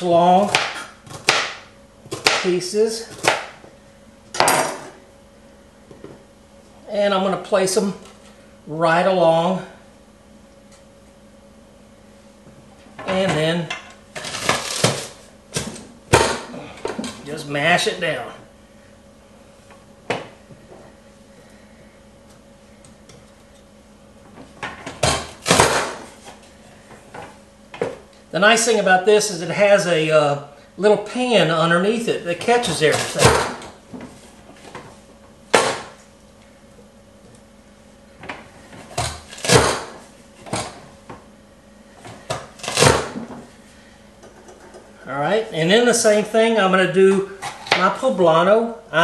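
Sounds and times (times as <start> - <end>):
vegetable chopper knocking: 0.4 - 2.5, 25.0 - 26.0, 32.9 - 33.6, 39.0 - 40.7
vegetable chopper clunks: 39.0 - 40.0.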